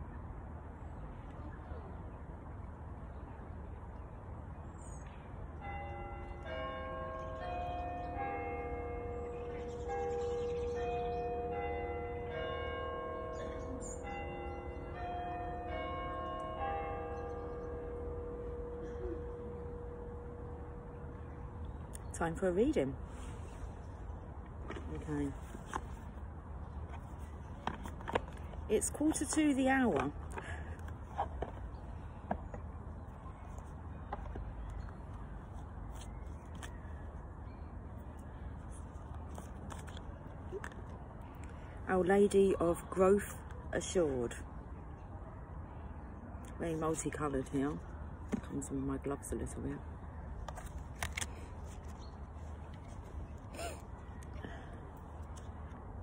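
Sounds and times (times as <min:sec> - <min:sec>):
church bells chiming melody: 0:05.6 - 0:21.9.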